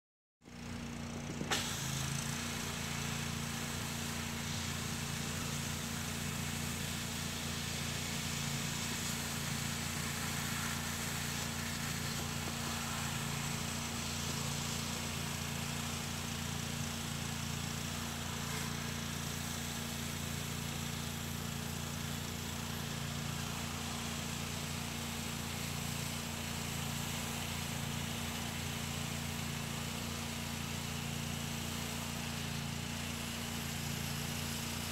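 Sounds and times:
pressure washer engine running: 0.4s - 34.9s.

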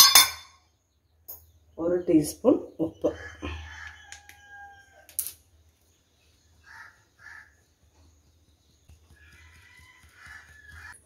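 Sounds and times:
faint bird calls: 6.6s - 7.7s.

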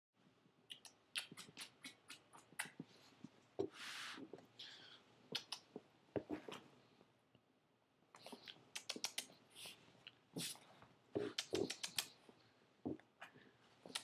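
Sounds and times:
kissing smacks of lips: 0.7s - 2.8s, 5.3s - 5.7s, 8.4s - 9.4s, 11.3s - 12.2s.

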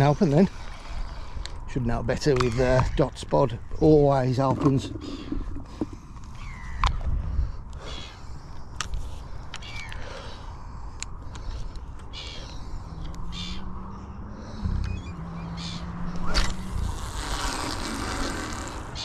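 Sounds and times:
birds calling: 0.0s - 19.0s
line hissing off reel: 16.3s - 19.0s.

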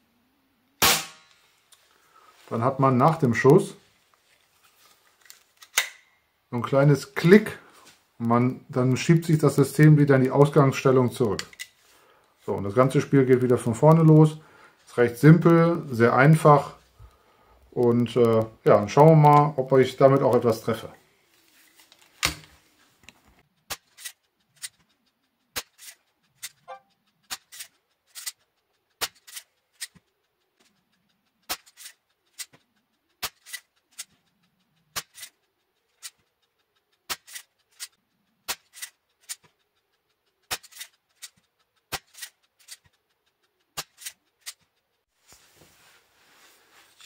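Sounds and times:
air pistol clicks and snaps: 5.2s - 6.1s, 25.5s - 30.1s, 31.4s - 36.4s, 37.0s - 43.0s, 43.7s - 44.7s.

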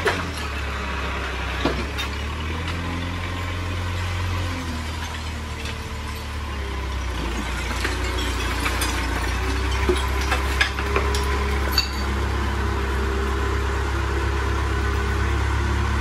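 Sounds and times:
rubble clunking: 0.0s - 12.3s
diesel engine running under load: 0.0s - 16.0s.

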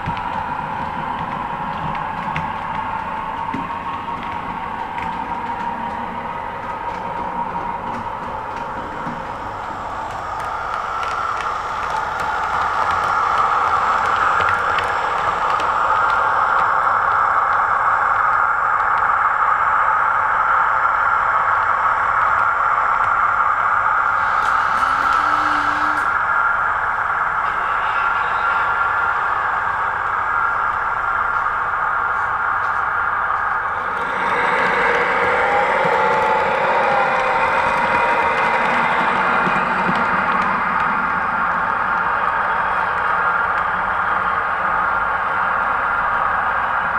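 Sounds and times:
model train whirring: 7.9s - 16.9s, 24.0s - 44.9s.

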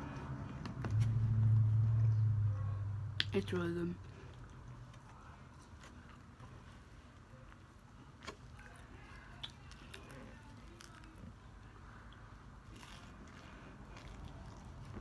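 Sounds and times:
person chewing: 7.5s - 11.3s, 12.0s - 15.0s.

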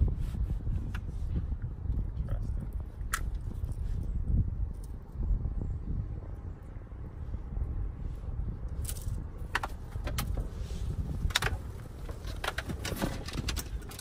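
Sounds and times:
wind rumble on microphone: 0.0s - 14.0s
gear clicking and knocking: 11.2s - 14.0s.

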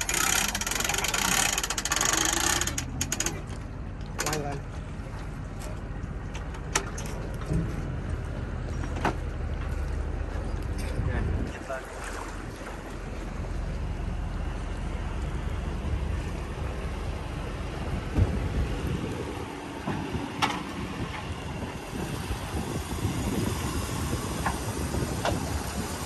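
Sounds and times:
wind rushing over microphone: 10.9s - 11.8s, 15.9s - 26.0s
water washing in shallows: 11.3s - 26.0s.

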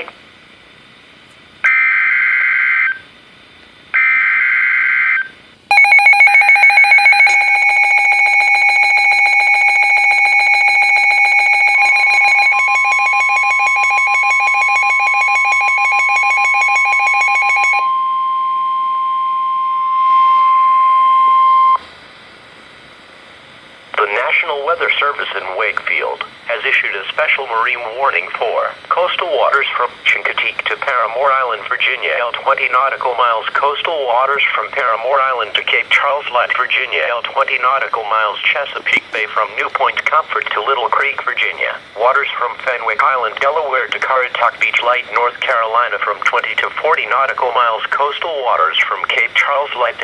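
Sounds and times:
steady warning tone: 4.0s - 21.9s
electronic alarm beeping rapidly: 5.7s - 21.8s.

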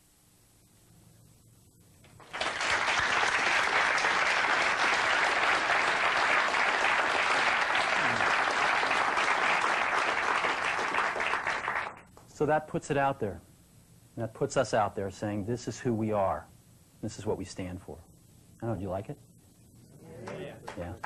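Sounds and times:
audience applauding: 2.1s - 12.1s.

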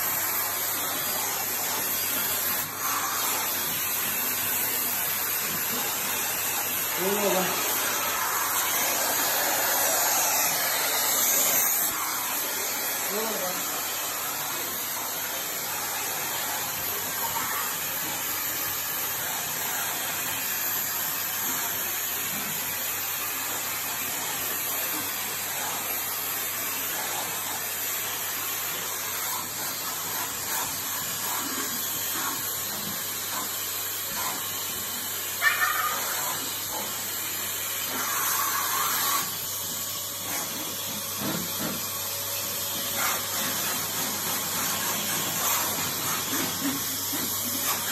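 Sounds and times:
vacuum cleaner running with hiss: 0.0s - 47.9s.

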